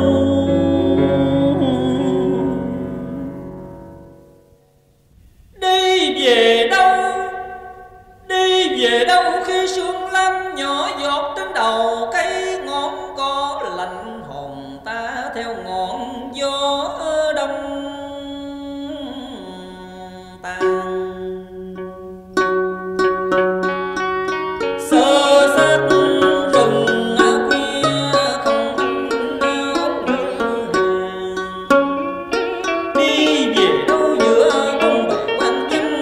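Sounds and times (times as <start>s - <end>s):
plucked string melody: 0.0s - 4.6s, 20.5s - 36.0s.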